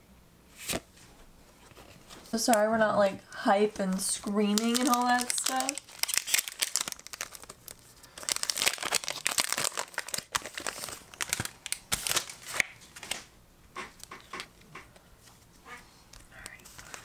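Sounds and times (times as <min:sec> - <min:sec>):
foil wrapper crinkling and tearing: 0:03.8 - 0:13.2.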